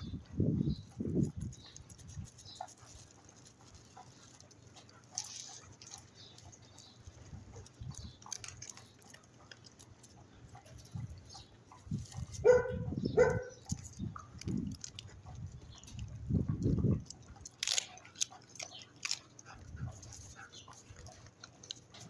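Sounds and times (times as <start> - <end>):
dog barking: 12.2 - 13.6.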